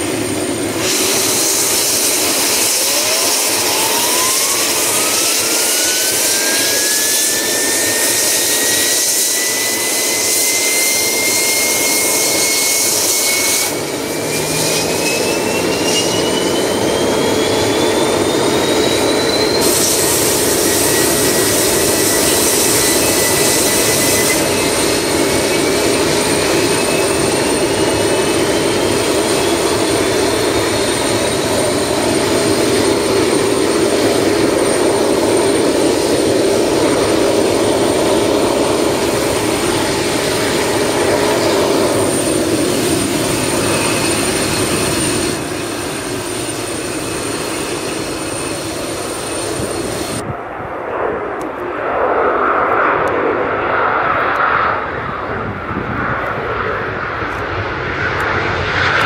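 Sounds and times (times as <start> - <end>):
jet engine roar with rising whine: 0.0 - 59.0.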